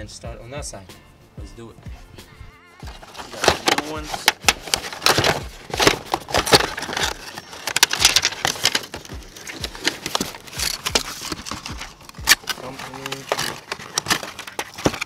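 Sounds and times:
cardboard boxes rustling and scraping: 0:02.8 - 0:15.0.

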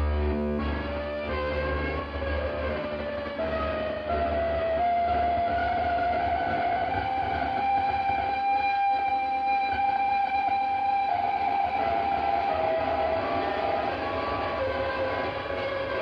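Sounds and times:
instrumental rock band: 0:00.0 - 0:16.0.

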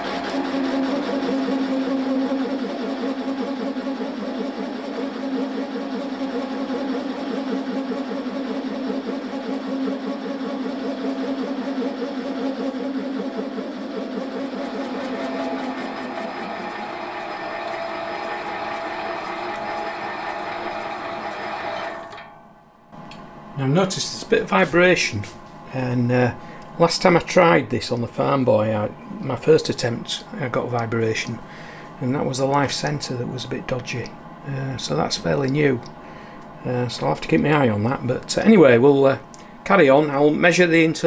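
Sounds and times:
metal lathe humming: 0:00.0 - 0:22.7.

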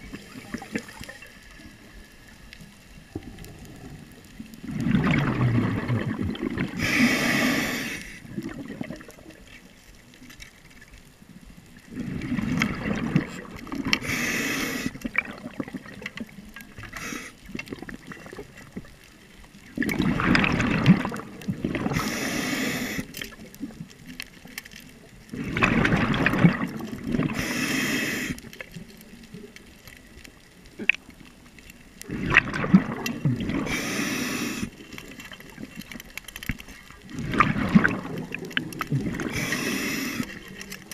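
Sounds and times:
bubbles gurgling underwater: 0:00.0 - 0:02.0, 0:03.0 - 0:09.6, 0:11.7 - 0:24.5, 0:25.1 - 0:27.5, 0:32.0 - 0:40.9
diver breathing through regulator: 0:06.6 - 0:08.3, 0:14.0 - 0:15.0, 0:16.9 - 0:17.4, 0:21.9 - 0:23.1, 0:27.3 - 0:28.5, 0:33.6 - 0:34.8, 0:39.2 - 0:40.5.

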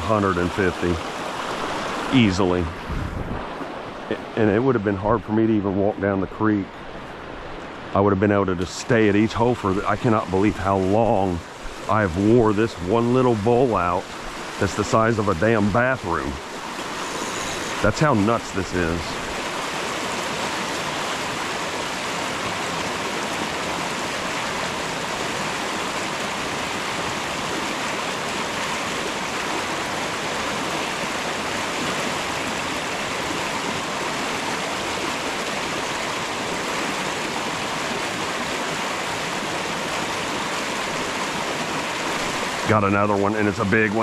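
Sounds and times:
creek water rushing: 0:00.0 - 0:44.0.

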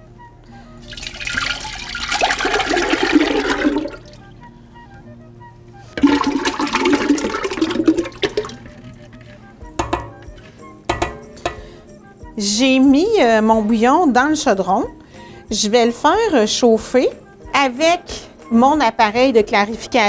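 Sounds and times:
broth pouring and splashing: 0:00.9 - 0:04.3, 0:06.0 - 0:09.2
wet mixture splashing into broth: 0:00.9 - 0:04.3, 0:06.0 - 0:09.2
knocks: 0:09.8 - 0:10.3, 0:10.9 - 0:11.6.

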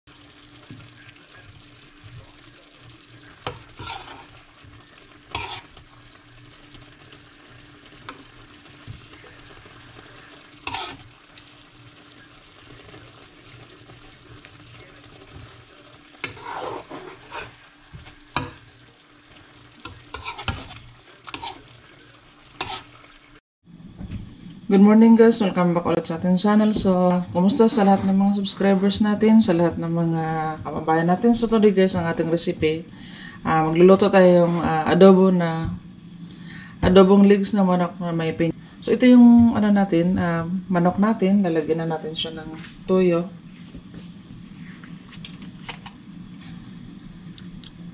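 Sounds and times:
spoon scraping ceramic plate: 0:03.5 - 0:04.3, 0:05.3 - 0:05.7, 0:10.6 - 0:11.0, 0:16.2 - 0:17.6, 0:19.9 - 0:21.6, 0:22.6 - 0:22.9.

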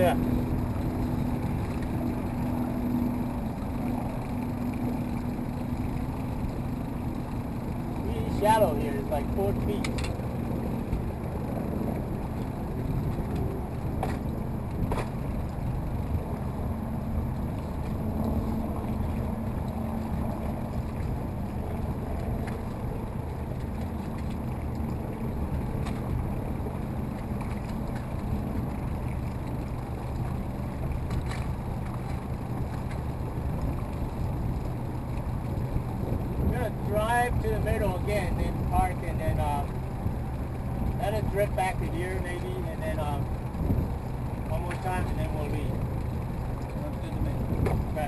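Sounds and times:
motorboat engine running: 0:00.0 - 0:48.0
water around the hull: 0:00.0 - 0:48.0
wind noise: 0:43.4 - 0:44.1, 0:47.0 - 0:48.0.

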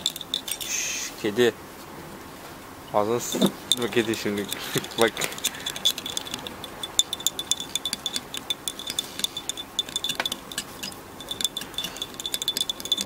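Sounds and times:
teaspoon clinking against glass: 0:00.0 - 0:00.8, 0:03.6 - 0:13.0.

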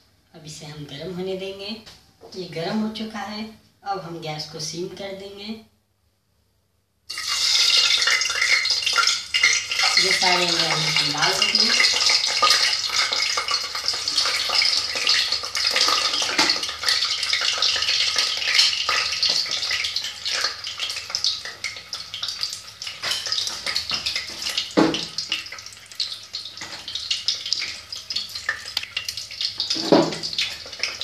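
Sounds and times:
eggs sizzling in hot oil: 0:07.1 - 0:31.0.

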